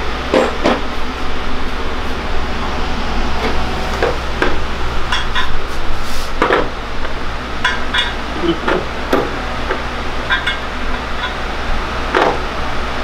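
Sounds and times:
steady low hum: 0.0s - 13.0s
metallic clinks and knocks: 10.3s - 11.4s.

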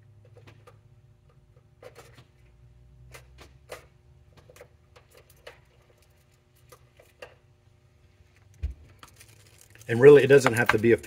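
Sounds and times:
low steady hum: 0.0s - 11.0s
small parts clicking and rattling: 3.1s - 7.4s, 8.3s - 11.0s.

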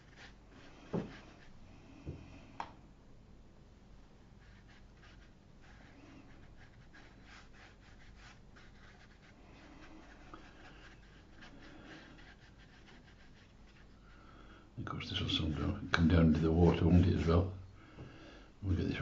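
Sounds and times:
paintbrush scratching on paper: 0.0s - 1.6s, 4.4s - 14.2s, 14.9s - 17.5s.

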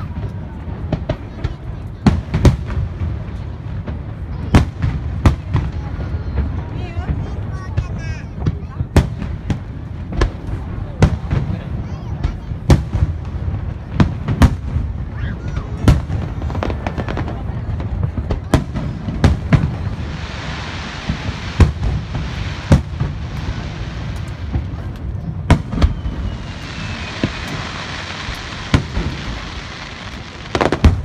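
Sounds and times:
hissing crackle of fireworks: 0.0s - 31.0s
firework shells bursting: 18.8s - 31.0s.

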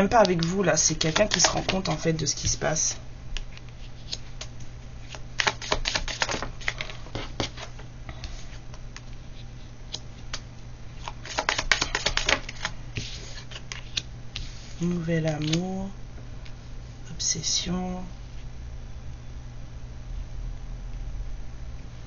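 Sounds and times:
steady low hum: 0.0s - 22.0s
cards being shuffled: 0.1s - 2.6s, 3.4s - 9.2s, 11.0s - 15.7s.

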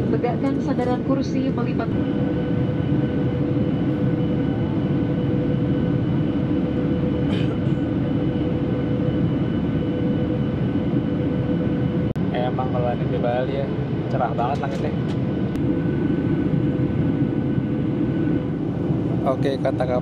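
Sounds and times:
airplane cabin rush of air: 0.0s - 20.0s
steady whining tones: 0.0s - 20.0s.

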